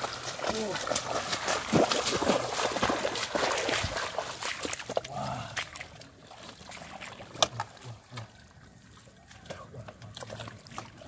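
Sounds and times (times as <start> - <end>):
water splashing from wading feet: 0.0 - 11.0.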